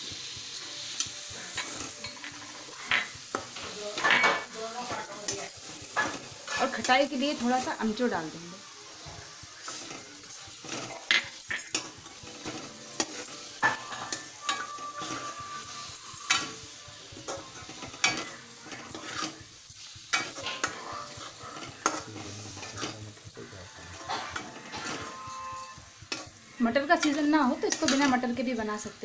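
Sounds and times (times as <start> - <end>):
frying sizzle: 0.0 - 29.0
spoon clinking against pan: 1.6 - 6.6, 9.7 - 19.4
metal spoon scraping potato stuffing: 9.4 - 23.1, 23.9 - 26.4, 27.0 - 28.3.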